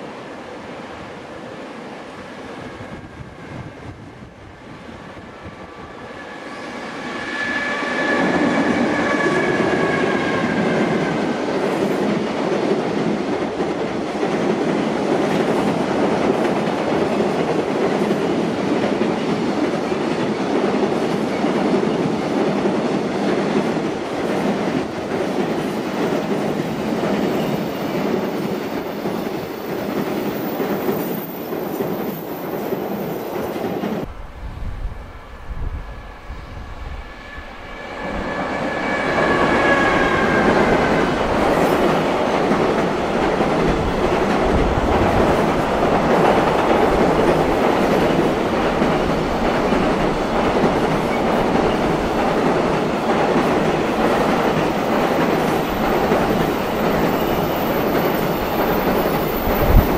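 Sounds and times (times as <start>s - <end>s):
locomotive whine: 2.4s - 11.3s, 34.0s - 46.0s
freight train rumble and clatter: 7.1s - 59.9s.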